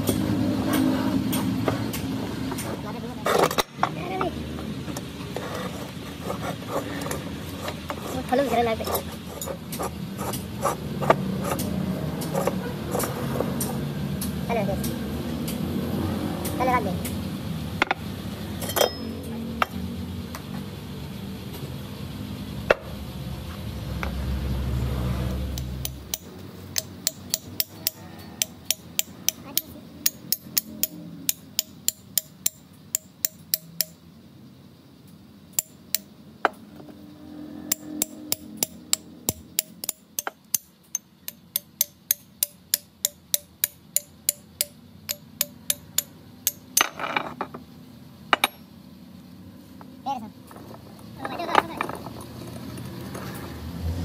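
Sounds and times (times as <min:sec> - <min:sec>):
hammer tapping on metal: 0:25.6 - 0:34.0, 0:35.6 - 0:36.1, 0:37.7 - 0:47.0.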